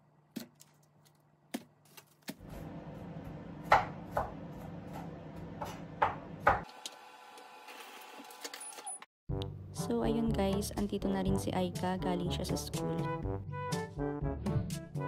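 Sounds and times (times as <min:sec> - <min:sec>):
knife chopping on cutting board: 0:03.6 - 0:06.7.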